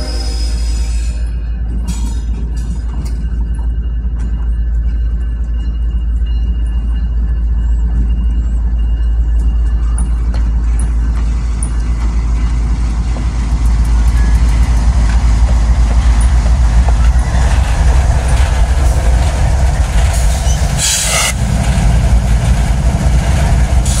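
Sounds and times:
diesel locomotive engines rumbling: 0:00.0 - 0:24.0
train wheels rolling on rails: 0:00.0 - 0:24.0.

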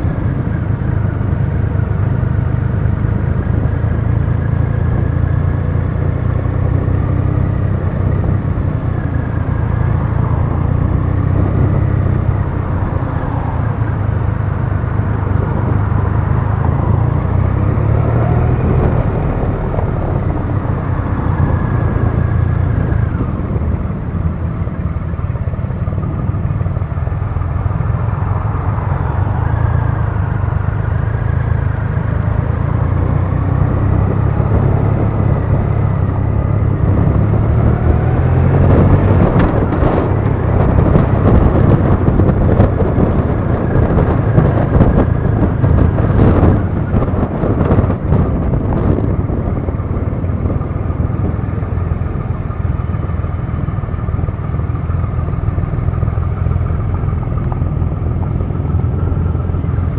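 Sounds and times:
motorcycle engine running: 0:00.0 - 0:59.9
road noise: 0:00.0 - 0:59.9
wind noise: 0:00.0 - 0:59.9.

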